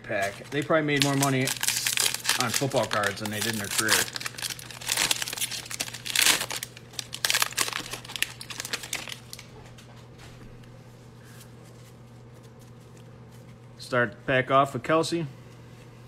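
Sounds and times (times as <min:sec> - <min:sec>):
foil wrapper crinkling and tearing: 0:00.1 - 0:09.5.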